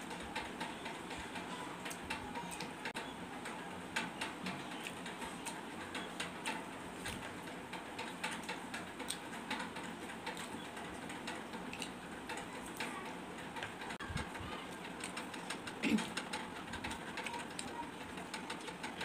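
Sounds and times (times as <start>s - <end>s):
wet chewing and mouth clicks: 11.7s - 12.0s.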